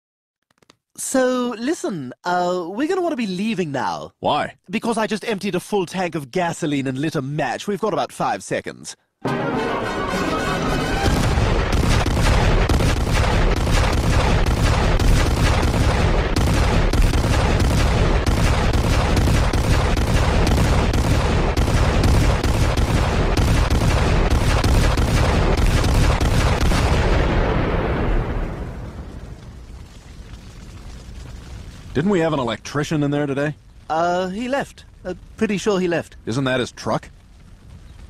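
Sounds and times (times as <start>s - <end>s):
rumbling explosion with cracks: 11.0s - 32.6s.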